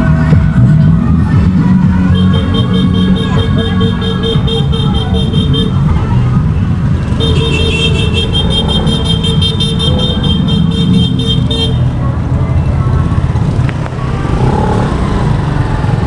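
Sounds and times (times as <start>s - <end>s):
motorcycle engine: 0.0s - 16.0s
street traffic noise: 0.0s - 16.0s
vehicle horn beeping rapidly: 2.1s - 5.9s, 7.1s - 11.9s.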